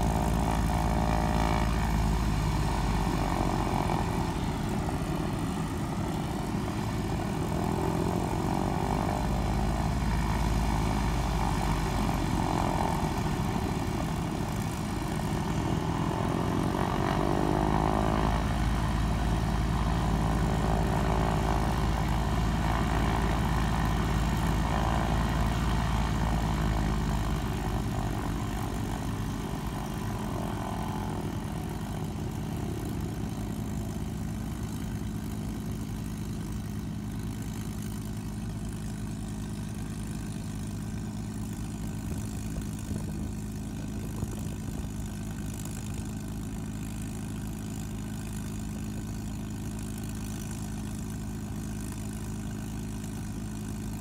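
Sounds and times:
piston aircraft engines idling: 0.0s - 17.2s, 17.8s - 54.0s.

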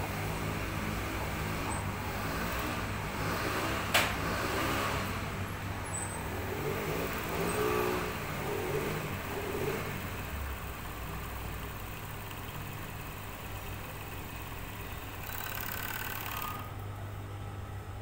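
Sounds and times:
sewing machine motor humming: 6.2s - 16.9s.

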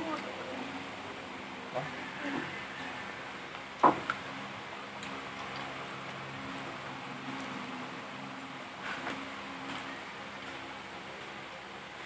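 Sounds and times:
low mechanical motor hum: 0.0s - 12.0s.

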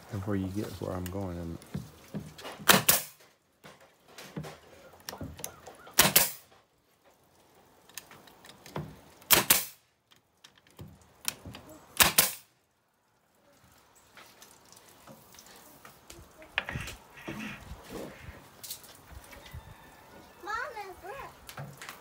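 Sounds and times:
nail gun firing into wood: 2.6s - 3.2s, 6.0s - 6.5s, 9.3s - 9.8s, 12.0s - 12.5s.

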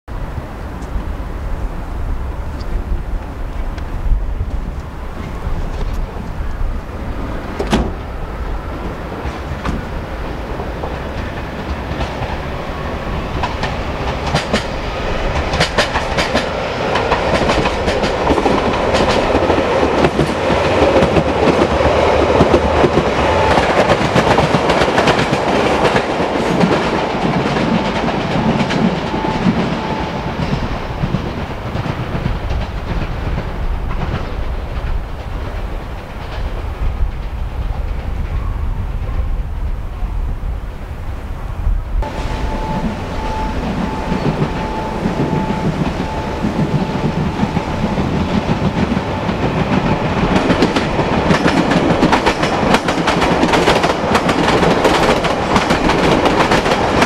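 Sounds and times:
train passing: 0.1s - 57.0s
wheels clicking over rail joints: 2.5s - 29.8s, 43.7s - 57.0s.

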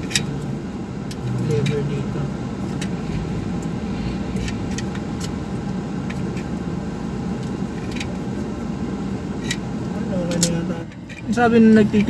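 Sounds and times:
car idling rumble: 0.0s - 12.0s.

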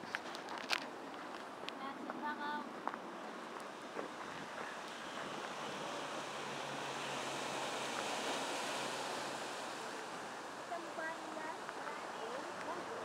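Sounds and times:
ocean surf washing over rocks: 4.8s - 13.0s.

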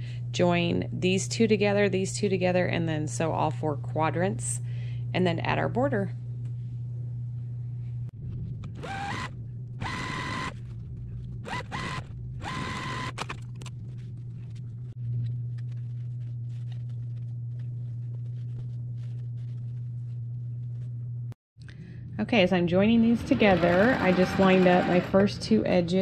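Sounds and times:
steady low hum: 0.0s - 26.0s
sewing machine stitching: 8.8s - 10.6s, 11.4s - 13.5s, 23.2s - 25.3s.

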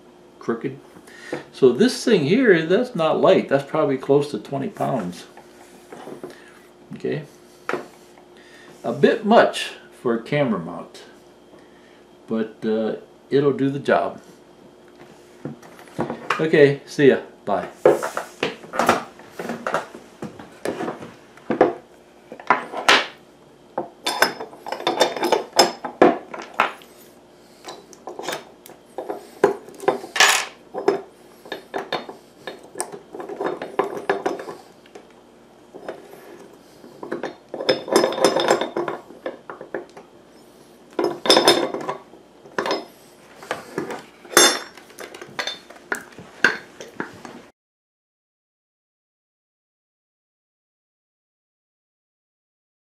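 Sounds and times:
metal parts clunking and clinking: 24.1s - 26.8s, 27.6s - 34.6s, 36.9s - 40.0s, 41.0s - 42.9s, 43.5s - 47.0s.

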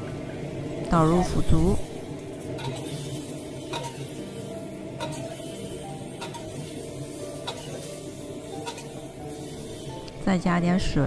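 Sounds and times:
metal spatula scraping a wok: 2.4s - 6.8s, 7.4s - 10.0s.

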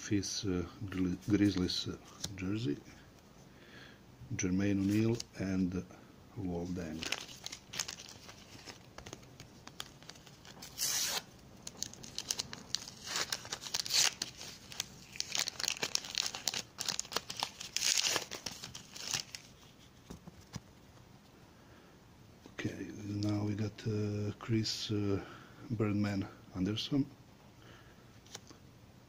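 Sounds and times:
paper wrapper tearing and crinkling: 6.8s - 19.8s.

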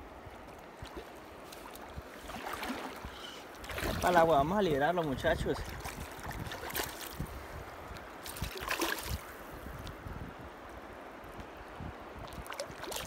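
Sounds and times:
river water lapping: 0.0s - 9.8s, 12.1s - 13.0s
wind on microphone: 0.0s - 13.0s
fish splashing: 8.2s - 9.3s.

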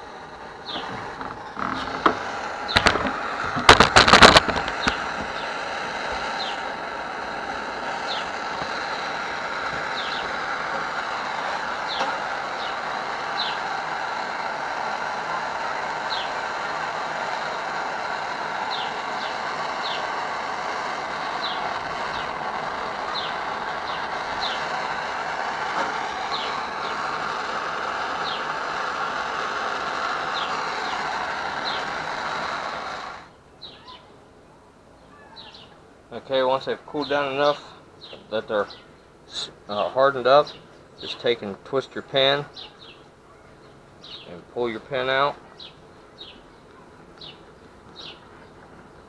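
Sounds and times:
steady rushing hiss: 0.0s - 49.0s
small bird chirps: 0.6s - 1.9s, 16.1s - 16.4s, 28.2s - 28.5s, 33.3s - 34.2s, 35.0s - 35.8s, 42.5s - 44.4s, 45.4s - 49.0s.

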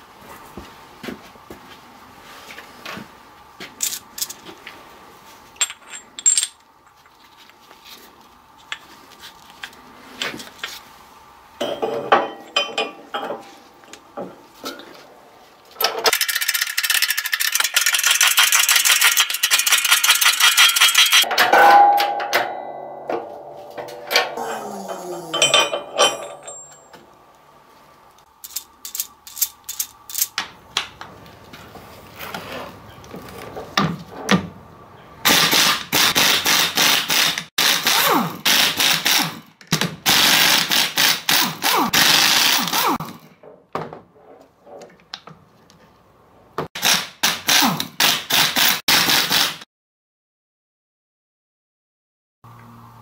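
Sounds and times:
impact wrench hammering: 17.6s - 27.0s
metallic clunks: 21.3s - 27.1s.

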